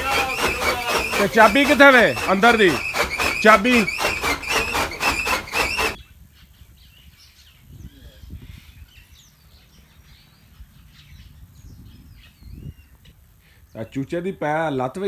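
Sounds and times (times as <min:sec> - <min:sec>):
chaff cutter clattering: 0:00.0 - 0:06.0
high squeal: 0:00.0 - 0:06.0.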